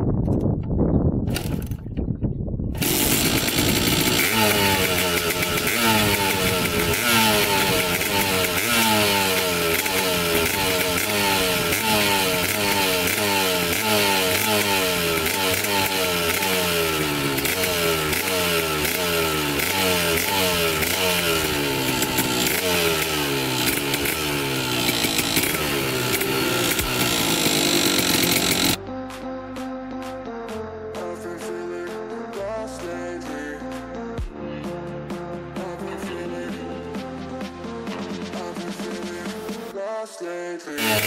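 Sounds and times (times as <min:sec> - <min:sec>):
two-stroke engine throttle blips: 0:02.7 - 0:28.8, 0:40.8 - 0:41.0.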